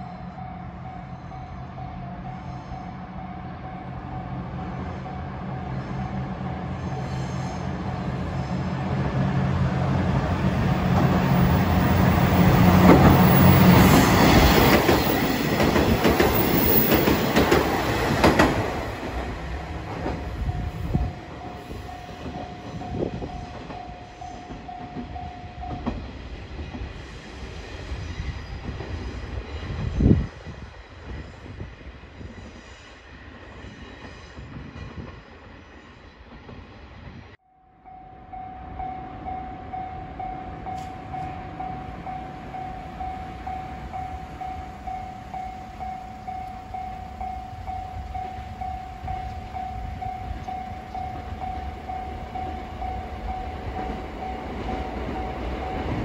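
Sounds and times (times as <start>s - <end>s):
train wheels clattering on rails: 9.0s - 31.6s
level-crossing warning bell: 10.1s - 26.1s, 37.4s - 56.0s.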